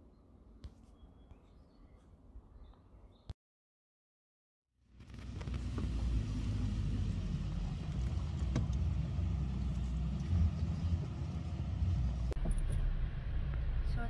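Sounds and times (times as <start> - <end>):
car engine and tyres rumbling: 4.8 - 14.0.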